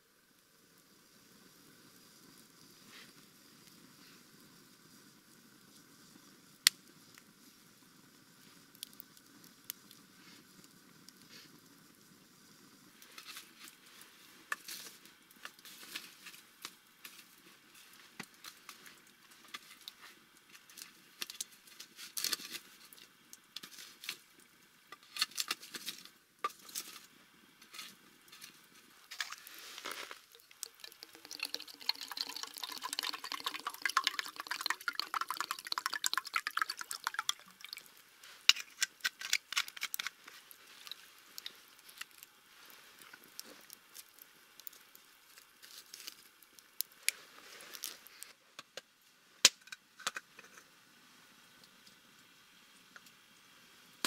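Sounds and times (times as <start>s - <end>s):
campfire crackling: 0.2s - 48.4s, 49.0s - 54.0s
liquid pouring into metal mug: 30.2s - 37.9s.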